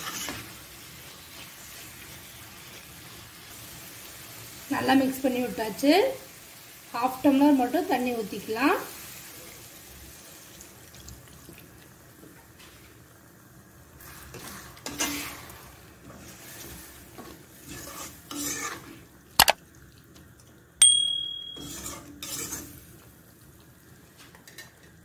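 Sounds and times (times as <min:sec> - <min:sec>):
spatula stirring and scraping pan: 0:00.0 - 0:05.0, 0:12.1 - 0:13.1, 0:13.9 - 0:19.5, 0:21.6 - 0:23.3.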